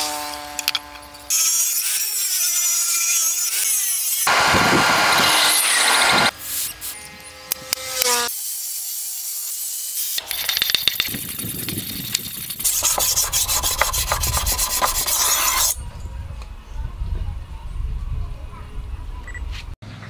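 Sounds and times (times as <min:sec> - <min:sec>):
blade scraping on sharpening stone: 0:12.6 - 0:15.8.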